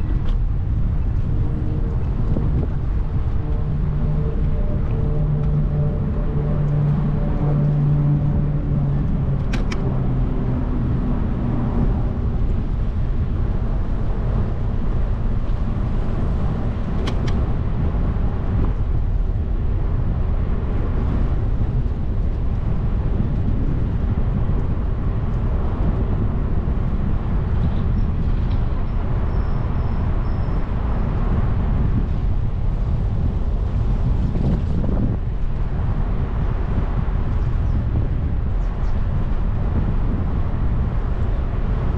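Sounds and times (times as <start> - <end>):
road noise from bicycle: 0.0 - 41.9
vehicle engine hum: 0.0 - 41.9
wind rushing: 0.0 - 41.9.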